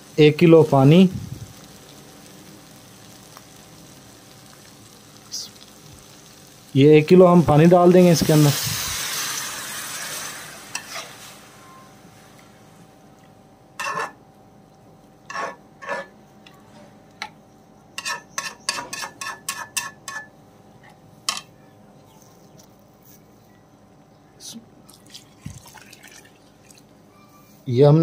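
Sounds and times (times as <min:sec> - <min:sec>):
sizzling hiss of water in hot pan: 0:00.0 - 0:12.9
metal spatula clinking on pot: 0:18.0 - 0:20.3.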